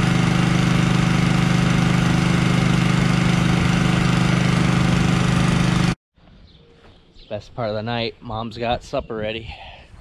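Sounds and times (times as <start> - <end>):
small gasoline engine running: 0.0 - 6.0.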